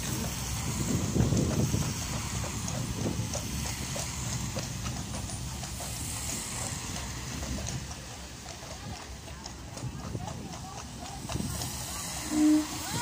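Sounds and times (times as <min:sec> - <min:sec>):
wind rumble on microphone: 0:00.0 - 0:03.9
horse hooves clip-clopping on road: 0:00.0 - 0:13.0.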